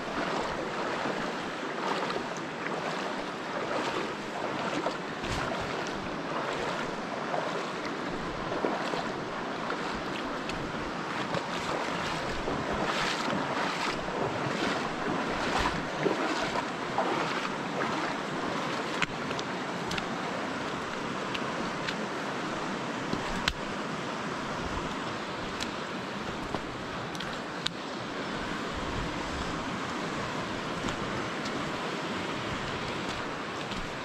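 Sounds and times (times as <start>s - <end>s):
legs wading splashes: 0.0s - 23.7s, 29.4s - 34.0s
river water rushing: 0.0s - 34.0s
wind on microphone: 3.6s - 18.6s, 28.3s - 34.0s.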